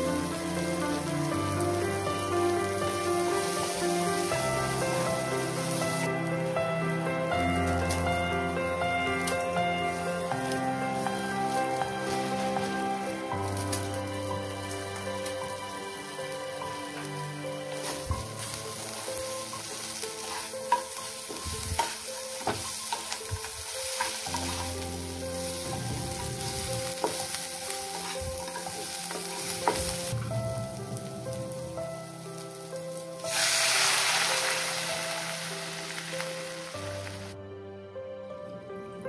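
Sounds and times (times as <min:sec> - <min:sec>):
noodles sizzling in a pan: 0:00.0 - 0:37.4
water hissing in a hot pan: 0:00.0 - 0:37.4
spatula scraping a pan: 0:19.6 - 0:30.1.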